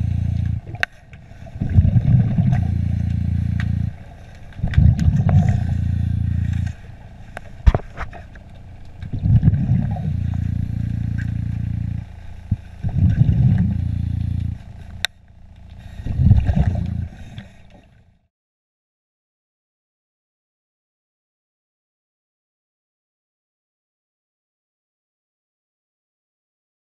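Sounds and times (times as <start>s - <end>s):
diver breathing through regulator: 0.0s - 8.5s, 9.1s - 15.1s, 15.7s - 18.0s.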